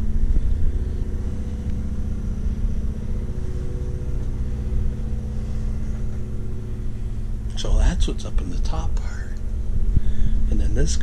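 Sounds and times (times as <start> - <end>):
low mechanical hum with rumble: 0.0 - 11.0.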